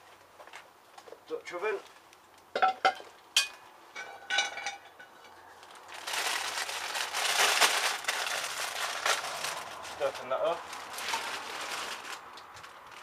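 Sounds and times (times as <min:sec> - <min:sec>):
cast-iron pot clanking: 0:02.5 - 0:05.4
plastic bag crinkling: 0:05.6 - 0:13.0.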